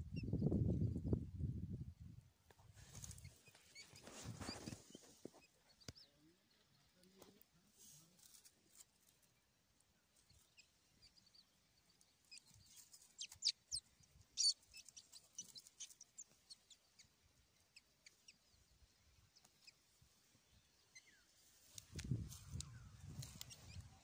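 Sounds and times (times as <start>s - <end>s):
chicks peeping: 2.9s - 7.4s, 10.1s - 20.0s, 21.6s - 24.0s.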